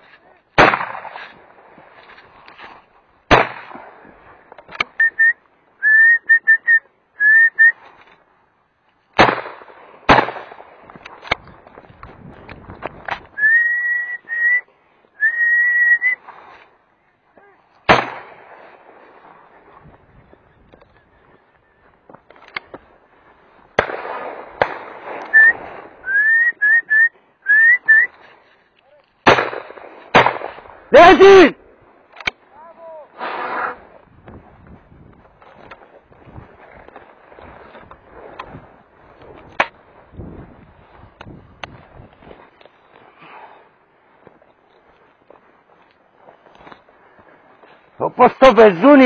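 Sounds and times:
shotgun shots: 0:00.6 - 0:01.4, 0:03.3 - 0:04.0, 0:09.2 - 0:11.4, 0:17.9 - 0:19.3, 0:23.7 - 0:25.9, 0:29.2 - 0:30.9
short rising whistled notes: 0:05.0 - 0:07.8, 0:13.4 - 0:16.2, 0:25.3 - 0:28.2.

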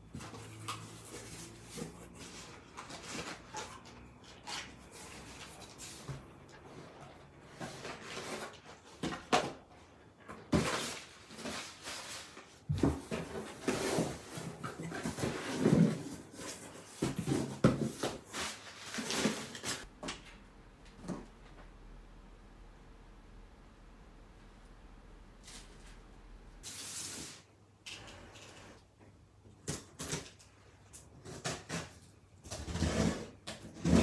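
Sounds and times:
cardboard packs knocking and sliding: 0:12.7 - 0:20.2.

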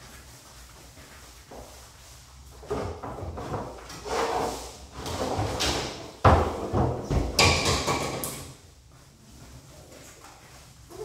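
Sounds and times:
clattering of a board: 0:05.2 - 0:08.5
knock: 0:06.2 - 0:08.3.

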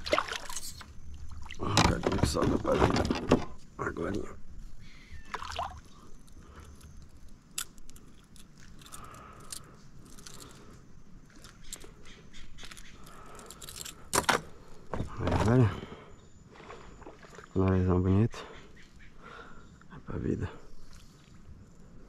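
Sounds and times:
fishing tackle clicks and rattles: 0:06.2 - 0:10.6, 0:12.6 - 0:14.5.

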